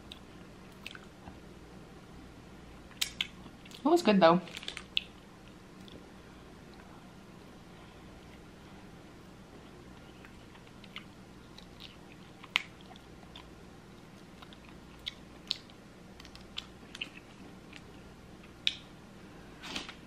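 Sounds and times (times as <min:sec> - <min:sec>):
faint low hum: 0:00.0 - 0:20.0.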